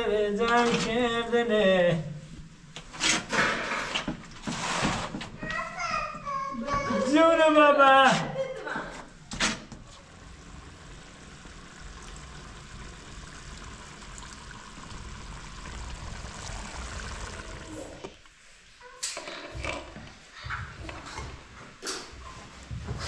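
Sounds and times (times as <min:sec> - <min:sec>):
stew bubbling in a pot: 0:09.7 - 0:18.4.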